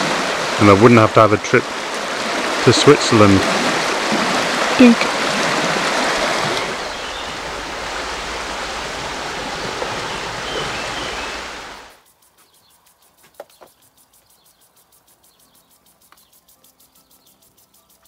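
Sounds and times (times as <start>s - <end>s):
river rushing over stones: 0.0s - 12.0s.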